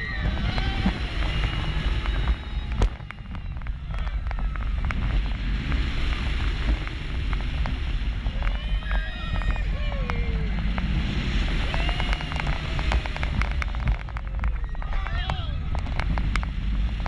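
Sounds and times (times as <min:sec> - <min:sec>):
riders' high voices: 0:00.0 - 0:05.2, 0:08.3 - 0:16.1
roller coaster rumbling on track: 0:00.0 - 0:17.0
wind buffeting microphone: 0:00.0 - 0:17.0.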